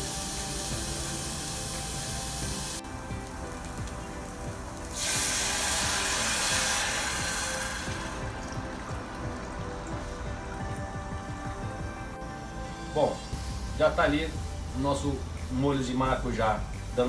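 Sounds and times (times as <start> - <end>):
onion sauteing with hiss: 0.0 - 11.7
juice poured into hot pan hissing: 0.0 - 11.8.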